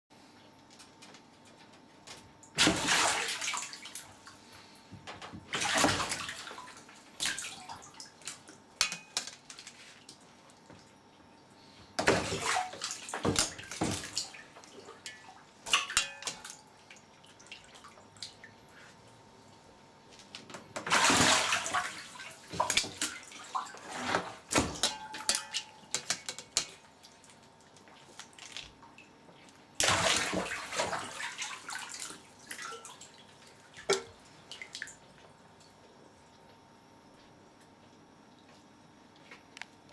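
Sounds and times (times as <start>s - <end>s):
water splashing in plastic tub: 2.5s - 4.3s, 5.4s - 8.6s, 12.0s - 18.5s, 20.7s - 27.4s, 29.8s - 35.0s.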